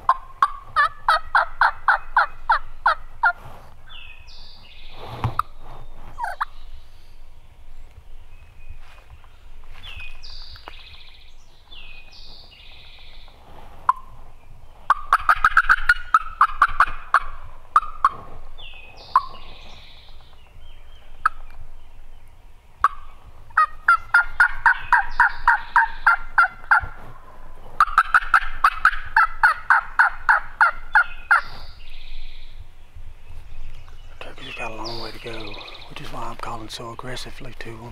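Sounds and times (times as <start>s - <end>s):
turkey call cutts and yelps: 0.1s - 3.4s, 6.2s - 6.6s, 14.9s - 18.3s, 19.0s - 19.6s, 21.2s - 21.6s, 22.8s - 27.0s, 27.8s - 31.7s.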